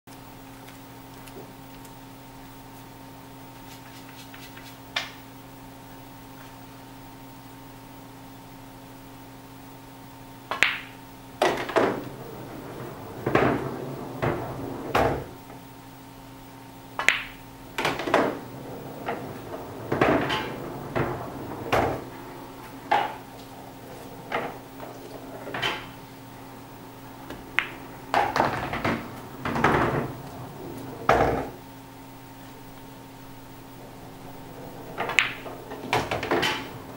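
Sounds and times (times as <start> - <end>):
steady hum: 0.1 - 36.9
pool cue striking ball: 10.5 - 15.4, 17.0 - 31.7, 32.3 - 36.9
pool balls clacking: 10.5 - 15.7, 16.8 - 36.9.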